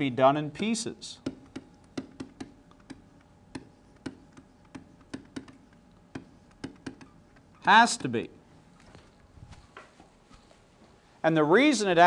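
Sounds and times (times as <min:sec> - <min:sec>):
stylus tapping on tablet screen: 0:01.2 - 0:07.5.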